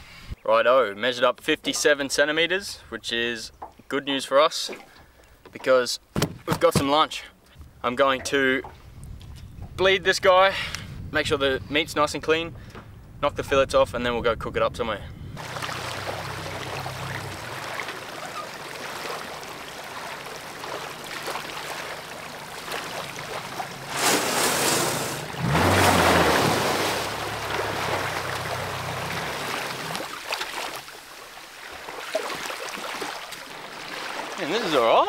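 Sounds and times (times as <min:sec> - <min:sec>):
wind: 0:00.0 - 0:35.0
outboard motor running low: 0:15.4 - 0:30.0
rushing water: 0:15.4 - 0:35.0
wash of water: 0:15.4 - 0:35.0.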